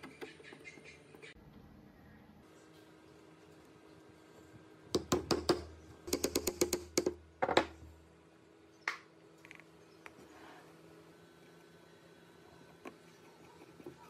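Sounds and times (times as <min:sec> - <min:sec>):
plastic fan clicking onto shaft: 0:05.0 - 0:07.2.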